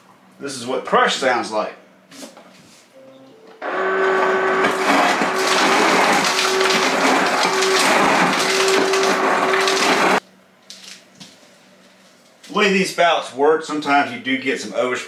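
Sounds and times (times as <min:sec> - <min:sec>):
refrigerator motor hum: 0:03.6 - 0:10.2.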